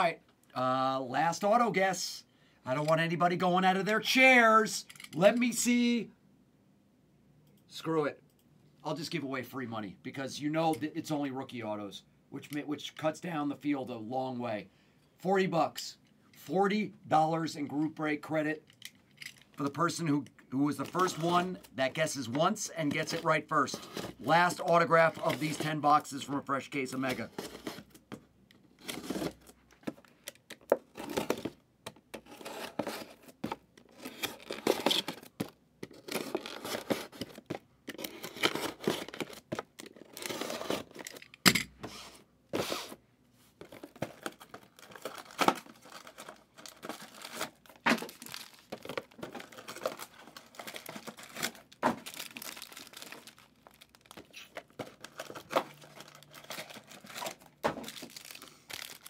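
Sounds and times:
card pack wrappers tearing and crinkling: 20.7 - 26.3, 28.8 - 29.6, 30.9 - 31.6, 32.2 - 41.3, 43.6 - 59.0.

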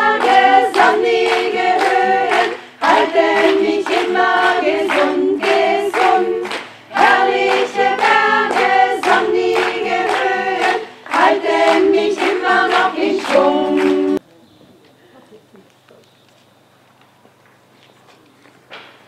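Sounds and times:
women's choir singing: 0.0 - 14.2.

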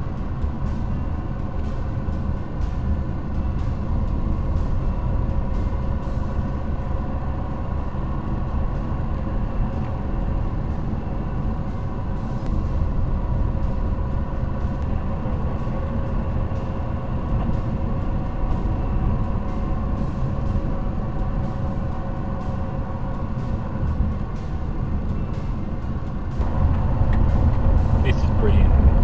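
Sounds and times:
car driving on gravel road: 26.3 - 29.0.

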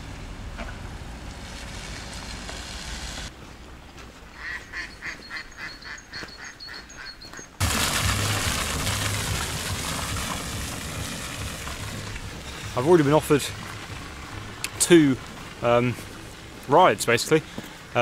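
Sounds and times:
waterfowl honking: 4.3 - 7.2
rushing noise with low rumble: 7.6 - 16.7.

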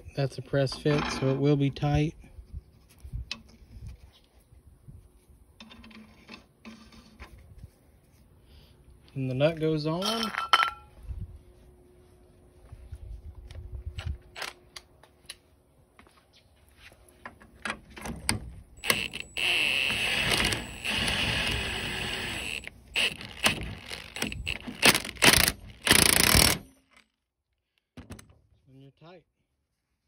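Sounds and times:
powered socket wrench spinning: 18.8 - 26.7.

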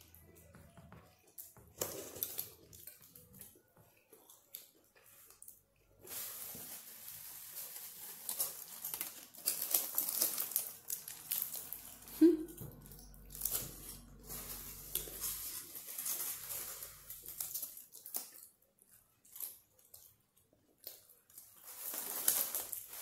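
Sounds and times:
wrap crinkling and tearing: 6.0 - 12.2, 13.2 - 18.5, 20.8 - 23.0
person eating: 8.2 - 15.8.

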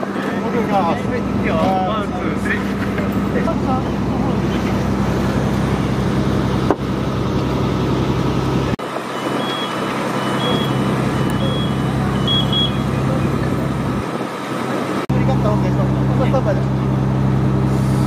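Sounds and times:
diesel engine idling: 0.0 - 18.0
outdoor noise: 0.0 - 18.0
two-note electronic beep: 9.1 - 12.9.

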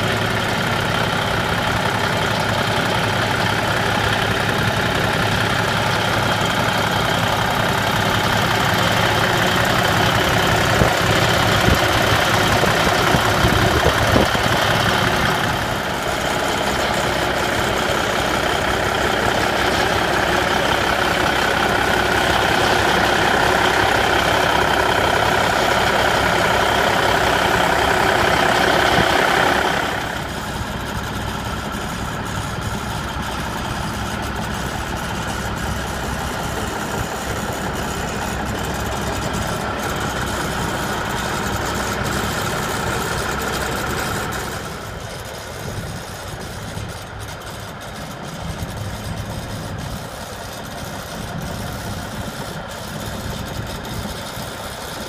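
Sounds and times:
diesel engine idling: 0.0 - 55.0.

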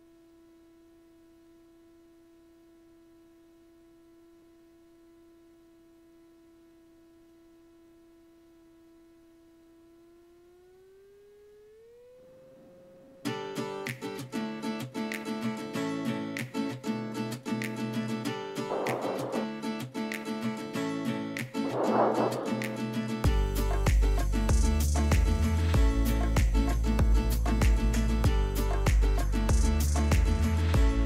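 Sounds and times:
faint humming tone: 0.0 - 13.5
strummed acoustic guitar music: 13.3 - 31.0.

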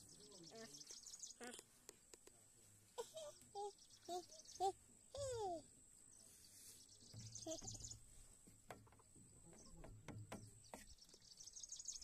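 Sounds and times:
faint high bird chirps: 3.1 - 8.3, 8.9 - 12.0.

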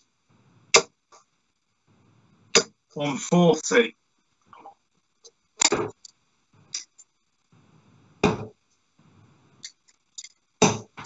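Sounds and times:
darts thudding into dartboard: 5.6 - 6.0, 8.2 - 8.6, 10.6 - 11.0.

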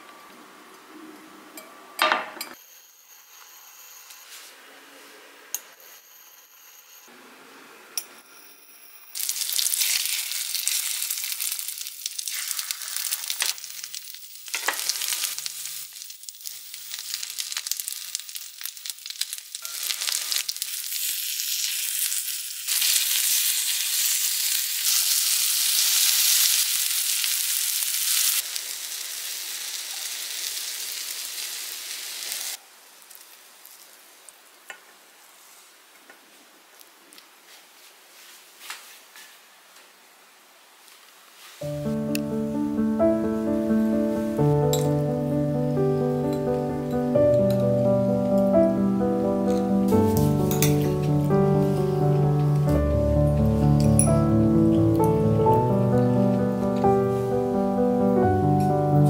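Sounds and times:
oysters sizzling in oil: 9.2 - 34.5, 49.7 - 52.6.

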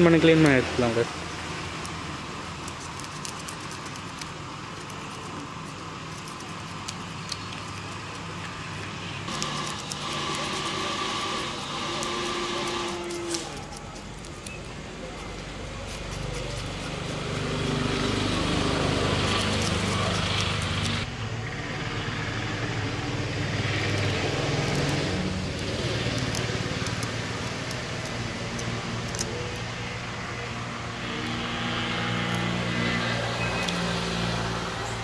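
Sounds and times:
engine running: 0.0 - 35.0
scissors trimming fins: 1.2 - 21.1, 23.1 - 34.7
knife scaling fish: 9.3 - 21.1.

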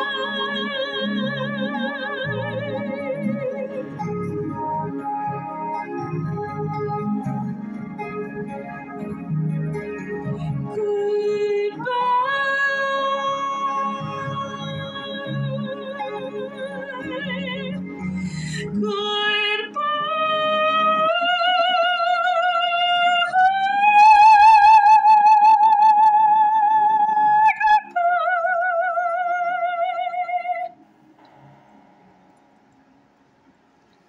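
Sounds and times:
woman singing with vibrato: 0.0 - 5.0, 10.3 - 30.8
backing music: 0.0 - 21.0.

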